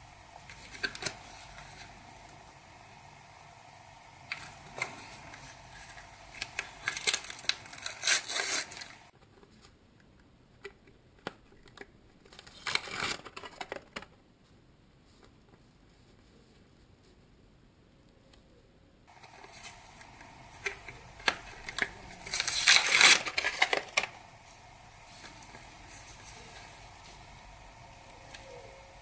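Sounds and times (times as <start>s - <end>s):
stickers rustling: 4.0s - 9.6s, 19.1s - 29.0s
sticker packet tearing and crinkling: 4.3s - 9.1s, 12.2s - 14.1s, 19.3s - 24.2s.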